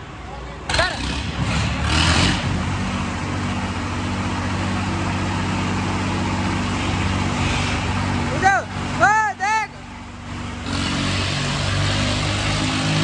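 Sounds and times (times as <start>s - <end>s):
tractor diesel engines under load: 0.0s - 13.0s.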